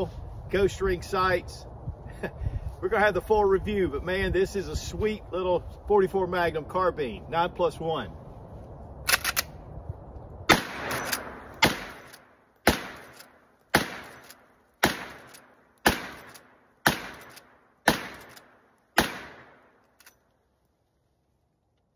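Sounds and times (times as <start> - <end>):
rifle shots: 10.5 - 19.8.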